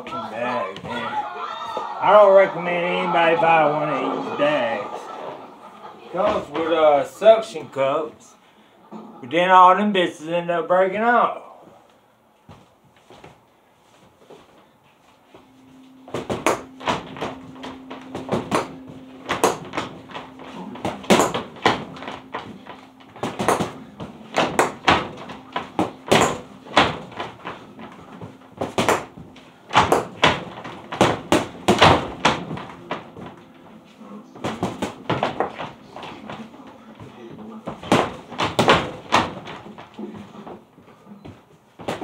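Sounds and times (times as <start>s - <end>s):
punches hitting heavy bag: 37.8s - 39.6s.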